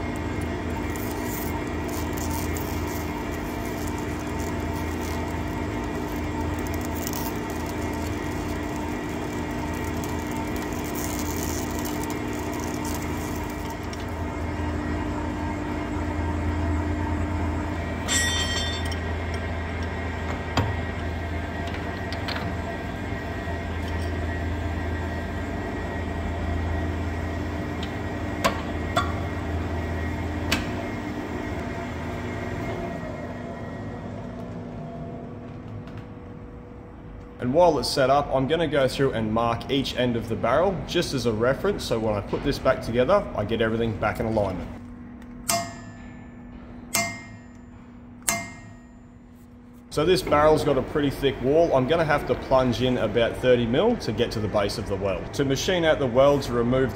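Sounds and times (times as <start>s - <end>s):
lathe running: 0.0s - 35.7s
metallic clank: 18.0s - 19.0s.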